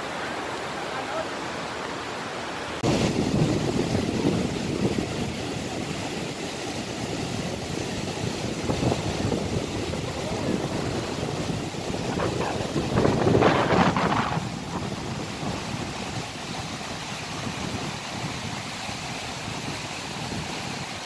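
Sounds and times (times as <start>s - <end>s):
surf breaking on shore: 0.0s - 21.0s
wind on microphone: 2.8s - 21.0s.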